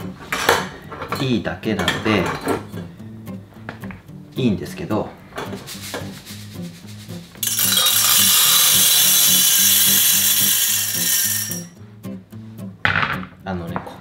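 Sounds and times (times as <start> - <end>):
coffee beans pouring rattling hiss: 5.6 - 11.7.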